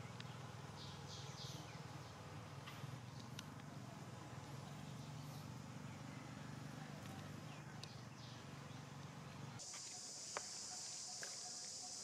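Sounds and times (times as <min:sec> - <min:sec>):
high-pitched insect drone: 0:09.6 - 0:12.0.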